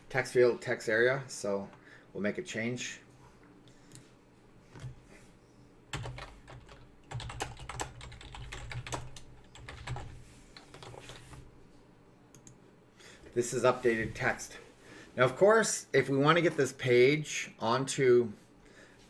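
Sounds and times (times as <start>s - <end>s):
typing on a computer keyboard: 5.9s - 11.4s.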